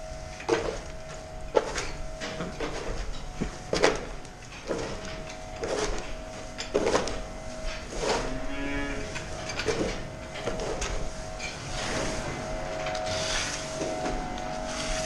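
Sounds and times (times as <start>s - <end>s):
steady hum: 0.0s - 15.0s
cow mooing: 8.2s - 9.3s.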